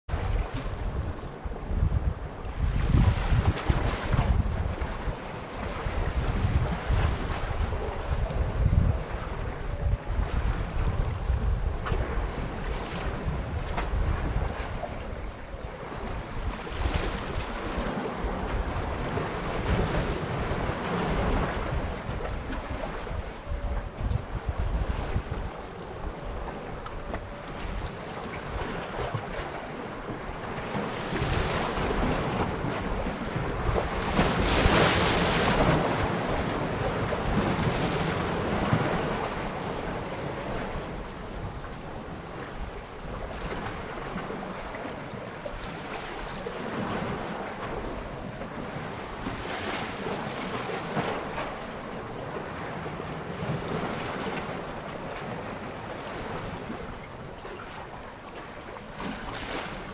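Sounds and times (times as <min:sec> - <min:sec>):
waves washing against rocks: 0:02.6 - 0:08.9, 0:30.2 - 0:56.8.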